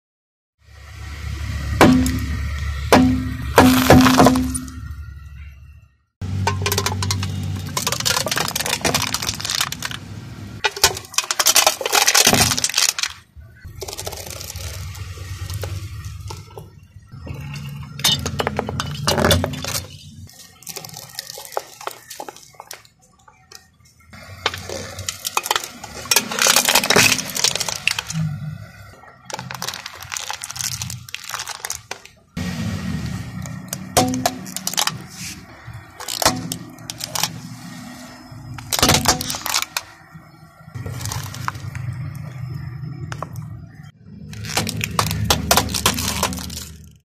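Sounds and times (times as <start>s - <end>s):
drink can crumpling: 6.7s - 10.0s, 10.7s - 15.7s, 19.2s - 22.9s, 24.2s - 28.2s, 29.2s - 32.2s, 36.0s - 37.4s, 38.6s - 39.9s, 40.8s - 42.2s, 44.3s - 47.0s
plastic cracking and snapping: 7.7s - 10.0s, 10.6s - 14.9s, 29.2s - 32.2s, 36.0s - 37.4s, 38.6s - 39.9s, 40.8s - 42.2s, 44.3s - 47.0s.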